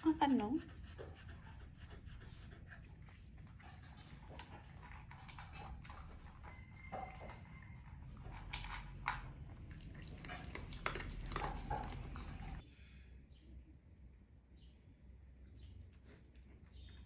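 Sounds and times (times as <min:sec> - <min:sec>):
dog crunching kibble: 0:03.4 - 0:12.6
kibble clicking against bowl: 0:04.0 - 0:12.6.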